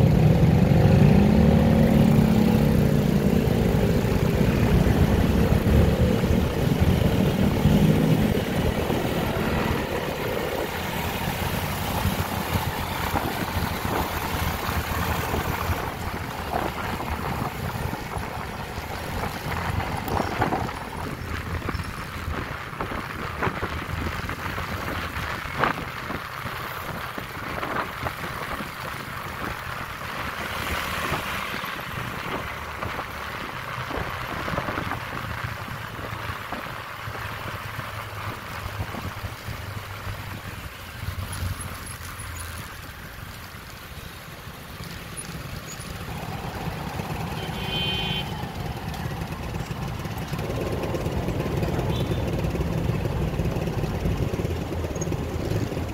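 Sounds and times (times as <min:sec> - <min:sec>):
wind noise on microphone: 0:02.0 - 0:41.2
scooter engine running: 0:45.3 - 0:55.9.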